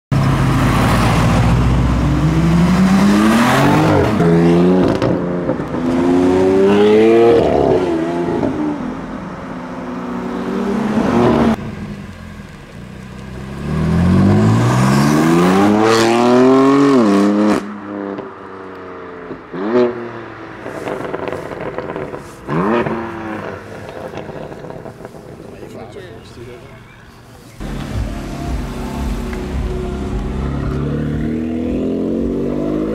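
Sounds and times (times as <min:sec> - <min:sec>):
car engine accelerating hard: 0:00.2 - 0:09.1, 0:13.2 - 0:18.2, 0:27.6 - 0:32.9.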